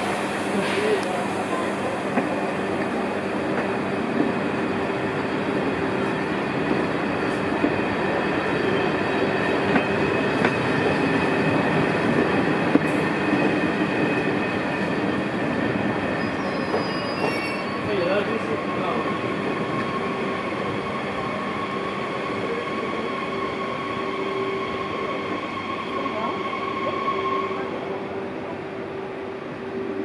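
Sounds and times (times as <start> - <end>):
train wheels rumbling on rails: 0.0 - 30.0
high squeal: 13.2 - 17.9.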